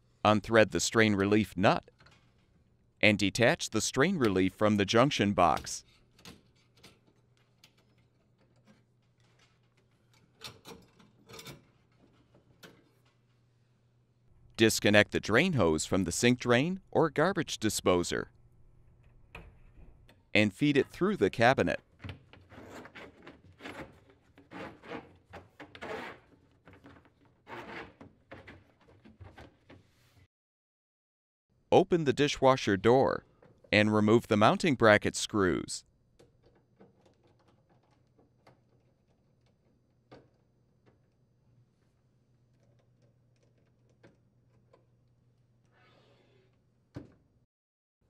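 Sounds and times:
hose scraping against cabinet: 22.4s - 26.5s.

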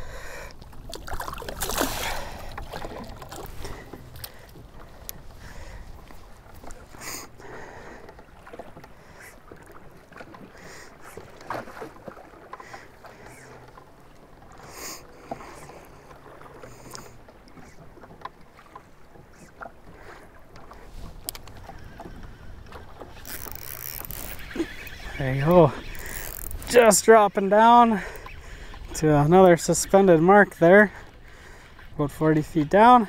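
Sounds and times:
waves lapping against boat hull: 0.0s - 33.0s
faint clicks and knocks: 20.5s - 24.4s.

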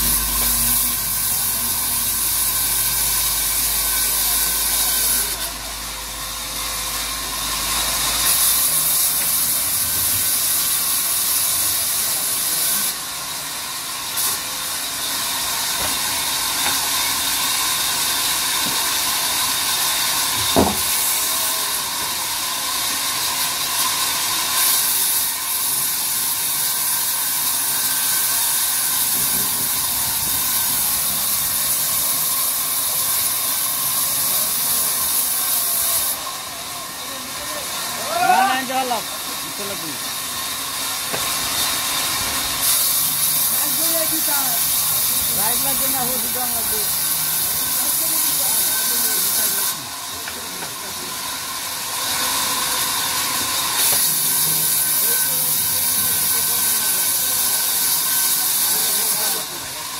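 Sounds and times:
band saw cutting log: 0.0s - 59.9s.

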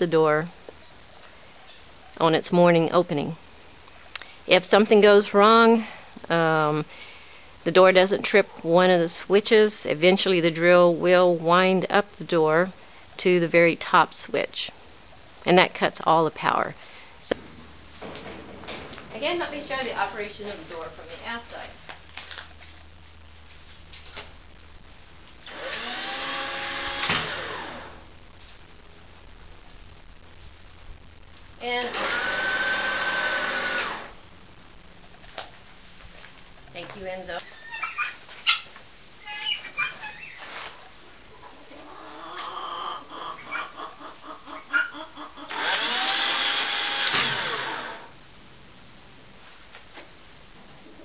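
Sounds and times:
cordless drill motor whine: 25.5s - 28.0s, 31.9s - 34.1s, 45.5s - 48.1s
poultry calling: 37.4s - 40.6s, 41.3s - 45.6s.

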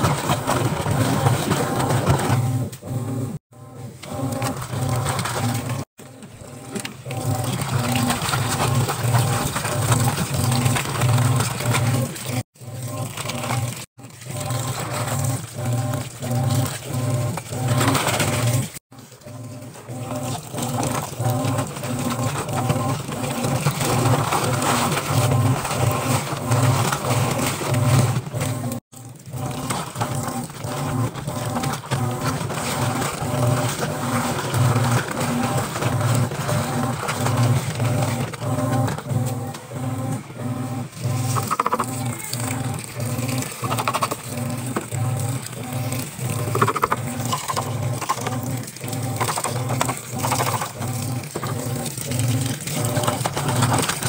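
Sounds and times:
washing machine pulsing hum: 0.0s - 54.0s
water pouring into drum: 6.5s - 38.9s, 40.9s - 54.0s.

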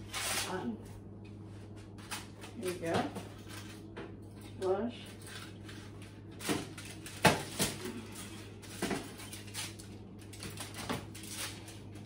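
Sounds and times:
steady low hum: 0.0s - 12.0s
plastic and foil crinkling: 5.1s - 12.0s.

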